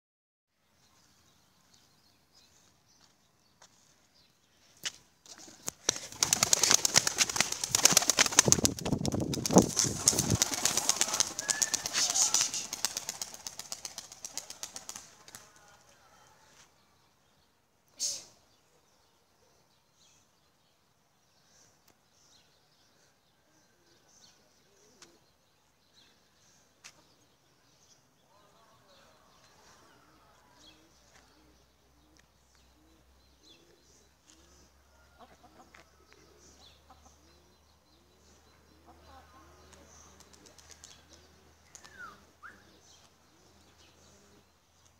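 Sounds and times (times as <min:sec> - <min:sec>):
pigeon wings flapping: 0:05.3 - 0:15.6.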